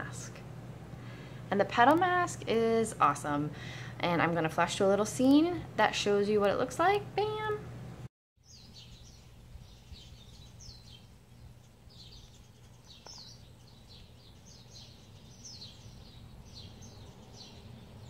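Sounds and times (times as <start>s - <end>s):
steady low hum: 0.0s - 18.0s
small birds chirping: 8.4s - 18.0s.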